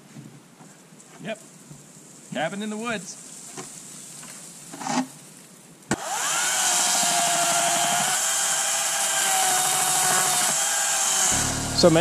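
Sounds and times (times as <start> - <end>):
machinery running with whine: 11.2 - 12.0.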